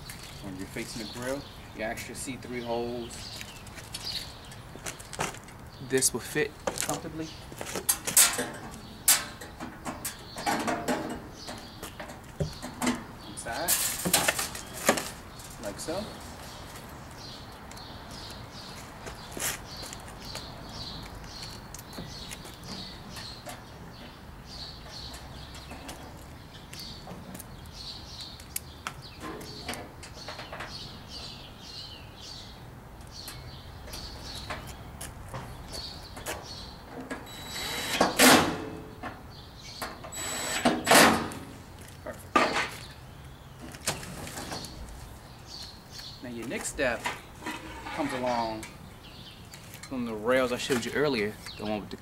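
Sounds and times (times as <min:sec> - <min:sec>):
cordless drill driving screws into metal: 0:37.3 - 0:38.5, 0:40.1 - 0:41.4.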